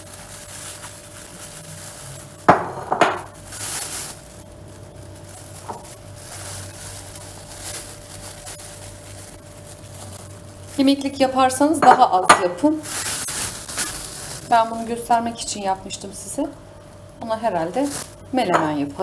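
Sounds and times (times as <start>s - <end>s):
plastic bag crinkling: 0.0s - 16.2s, 17.3s - 19.0s
ceramic bowl knocking: 2.5s - 3.3s.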